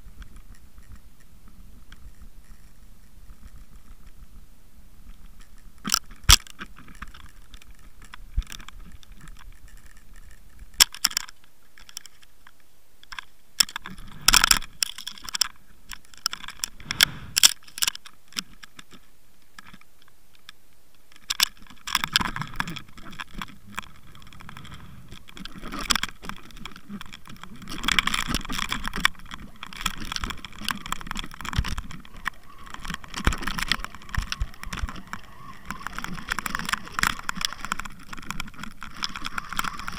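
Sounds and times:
underwater knocks and clattering: 21.4s - 39.9s.

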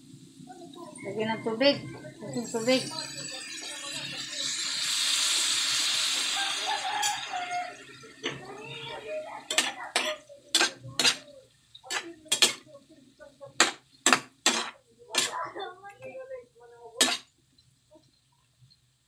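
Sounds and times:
water hissing into hot wok: 2.2s - 12.7s
metal spatula scraping wok: 9.5s - 12.6s, 13.6s - 15.5s, 17.0s - 17.3s.

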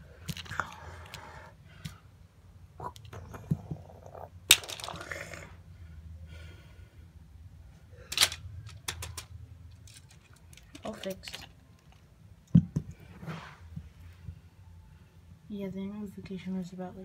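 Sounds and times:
faint low hum: 0.0s - 17.0s
plastic toy parts clicking: 8.1s - 12.0s.

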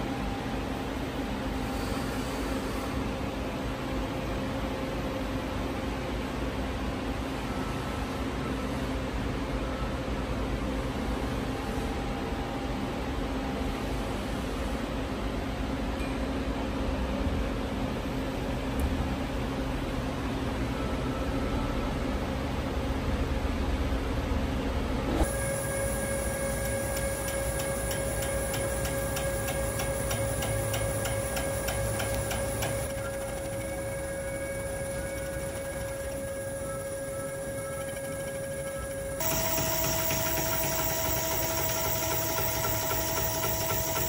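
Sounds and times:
motors and fans humming: 0.0s - 44.0s
lathe machine whine: 25.1s - 44.0s
faint steady tones: 25.2s - 44.0s.

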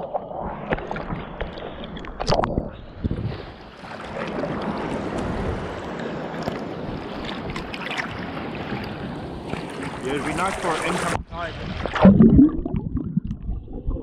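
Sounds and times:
rush of moving water: 3.7s - 12.0s.

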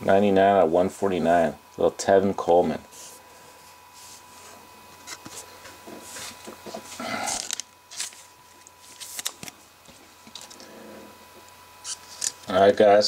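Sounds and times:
plastic crinkling and rustling: 6.1s - 9.6s.

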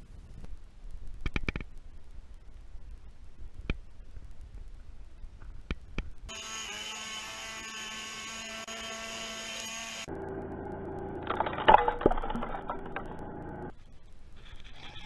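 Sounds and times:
leaf blower whine: 6.3s - 10.2s.

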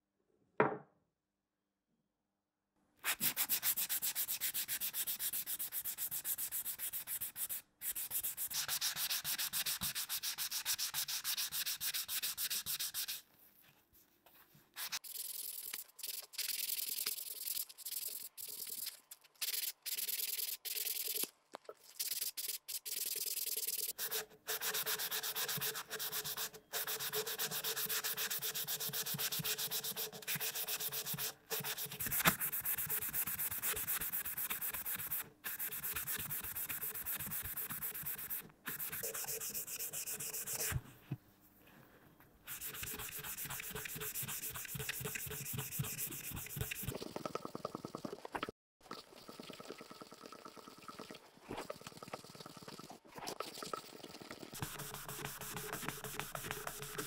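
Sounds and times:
sandpaper rasping on dried fish: 42.5s - 46.9s.

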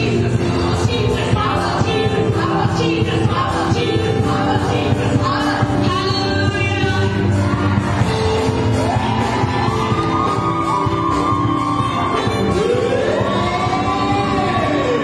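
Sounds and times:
women singing: 0.0s - 8.1s, 11.7s - 15.0s
gospel band playing: 0.0s - 15.0s
shouted vocal glides: 8.9s - 15.0s.

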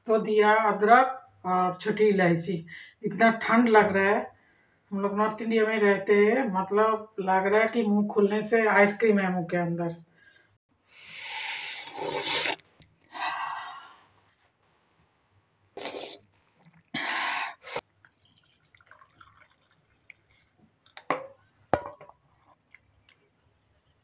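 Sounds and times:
person slurping tea: 11.2s - 12.7s, 15.8s - 16.9s
tea trickling and dripping: 15.8s - 17.0s, 17.8s - 23.4s.

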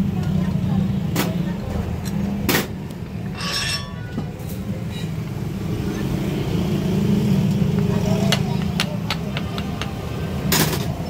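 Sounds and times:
wire coil metallic clinking: 3.3s - 4.1s.

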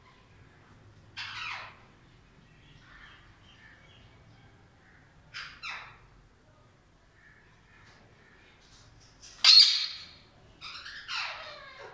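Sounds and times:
parakeets screeching: 1.2s - 1.8s, 9.4s - 11.9s.

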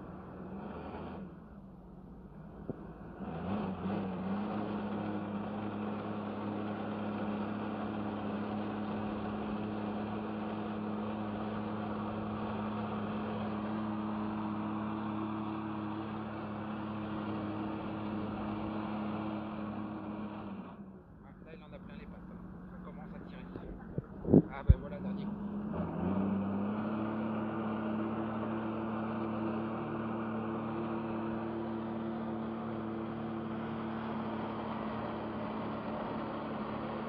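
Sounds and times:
jet ski engine revving: 3.0s - 20.7s.

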